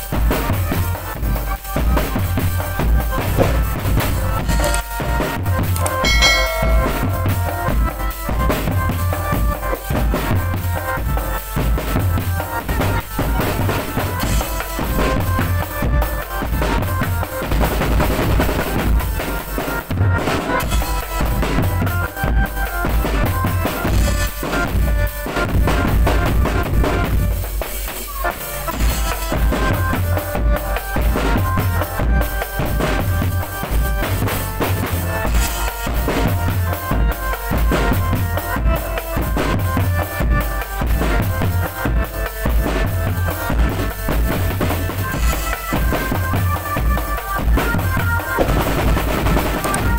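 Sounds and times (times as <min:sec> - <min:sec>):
rattling snare drums: 0:00.0 - 0:49.9
pitched melody: 0:05.8 - 0:07.8.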